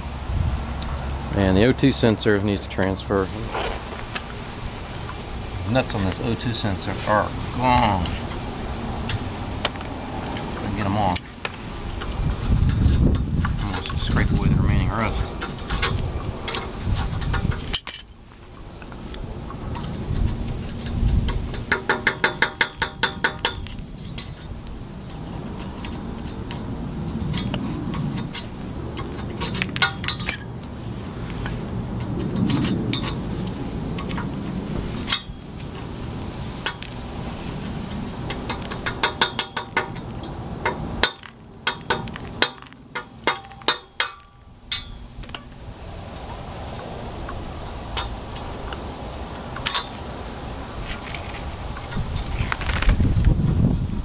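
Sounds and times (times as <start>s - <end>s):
metal tool scraping rusty pipe: 9.6s - 18.2s, 19.7s - 35.9s, 36.6s - 45.5s, 49.6s - 50.0s
ringing metal taps: 21.3s - 24.5s, 27.3s - 30.5s, 38.2s - 45.5s.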